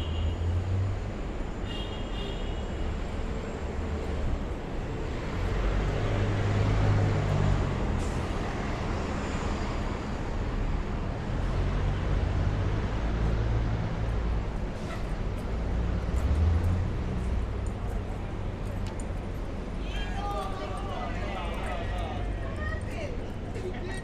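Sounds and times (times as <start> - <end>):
traffic rumble: 0.0 - 24.0.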